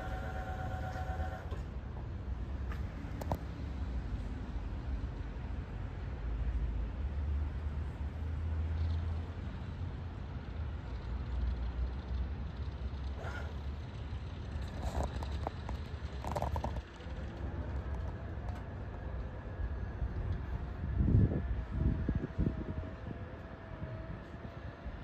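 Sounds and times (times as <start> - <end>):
boom lift low rumble: 11.9 - 25.0.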